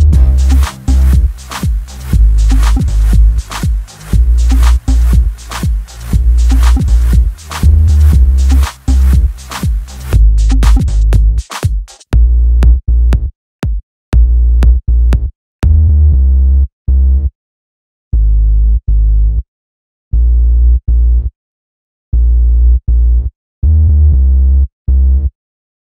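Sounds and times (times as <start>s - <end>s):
electronic music with drum-machine beat: 0.0s - 13.8s.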